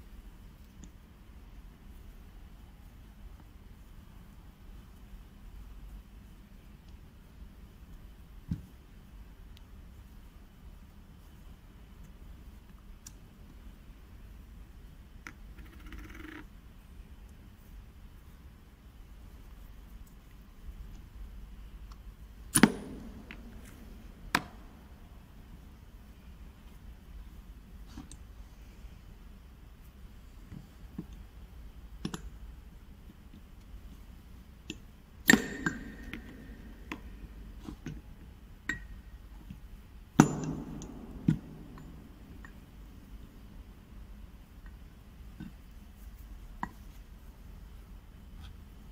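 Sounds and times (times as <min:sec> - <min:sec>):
metal valve part click: 0:22.5 - 0:23.4, 0:34.7 - 0:37.0
loud metallic knocks with ring: 0:40.2 - 0:42.0.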